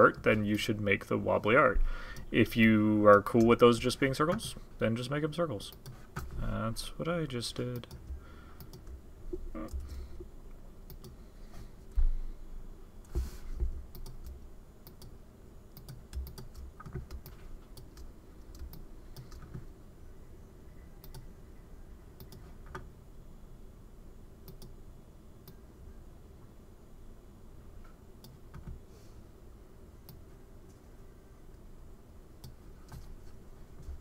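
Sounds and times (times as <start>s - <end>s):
computer mouse clicks: 7.8s - 9.0s, 10.9s - 11.2s, 13.9s - 15.1s, 15.8s - 19.6s, 21.0s - 21.3s, 22.2s - 22.9s, 24.4s - 24.8s.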